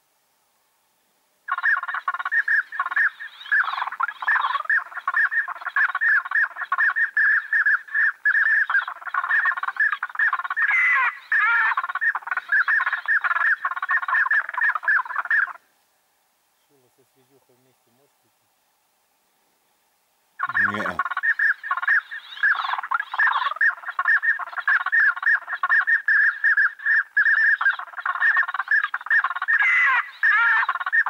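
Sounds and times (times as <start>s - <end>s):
ducks chattering: 1.5s - 15.6s, 20.4s - 31.0s.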